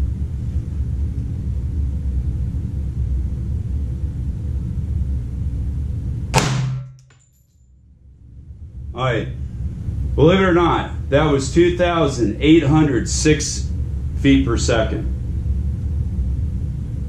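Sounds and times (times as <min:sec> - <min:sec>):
low rumble: 0:00.0 - 0:07.1, 0:07.8 - 0:17.0
gunshot: 0:06.4 - 0:07.1.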